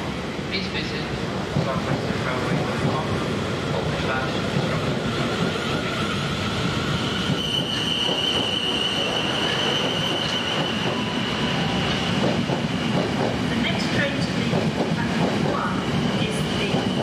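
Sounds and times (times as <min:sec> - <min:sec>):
train wheels rumbling: 0:00.0 - 0:17.0
high steady squeal: 0:07.0 - 0:11.9.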